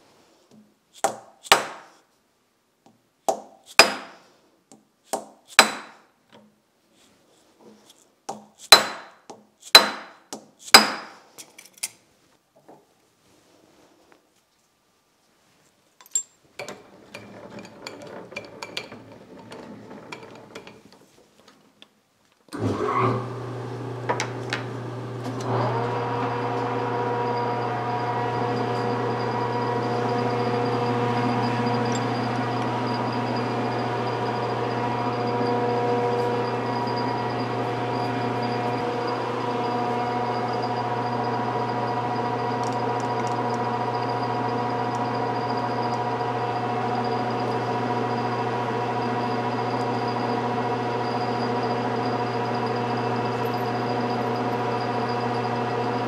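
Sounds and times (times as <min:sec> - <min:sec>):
metal tools clinking: 0:16.0 - 0:19.1, 0:31.8 - 0:32.2
lathe motor running: 0:22.6 - 0:56.0.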